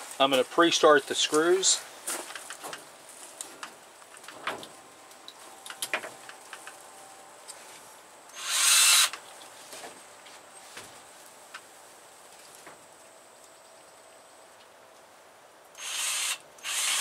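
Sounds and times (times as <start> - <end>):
cordless drill driving a screw: 8.3 - 9.2, 15.8 - 17.0.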